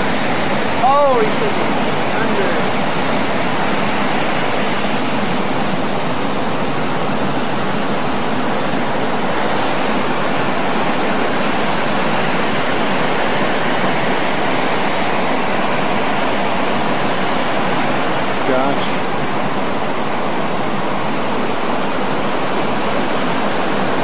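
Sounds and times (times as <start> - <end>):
ocean surf breaking: 0.0 - 24.0.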